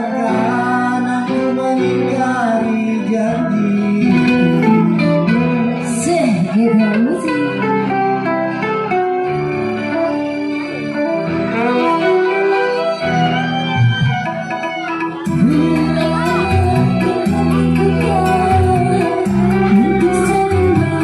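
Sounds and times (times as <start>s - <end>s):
electronic keyboard music: 0.0s - 21.0s
pitch-bending synth line: 3.4s - 7.5s.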